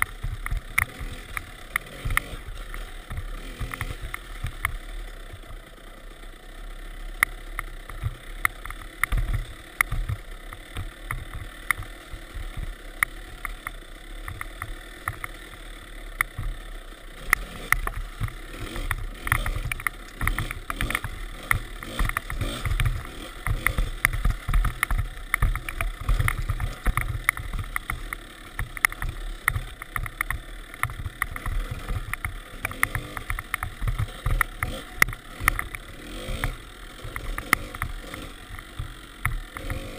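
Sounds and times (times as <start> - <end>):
dirt bike engine running: 0.0 - 39.9
sharp knocks and rattles: 7.2 - 15.6, 17.2 - 39.9.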